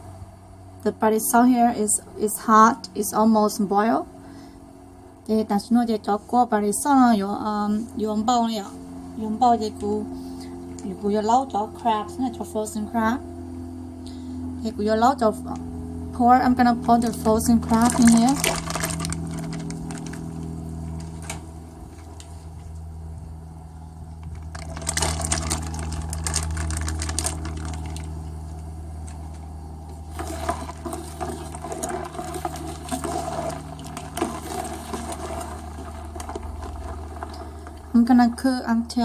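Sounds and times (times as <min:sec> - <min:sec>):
steady low hum: 0:00.0 - 0:39.0
liquid splashing and sloshing: 0:24.4 - 0:28.1, 0:30.1 - 0:38.0.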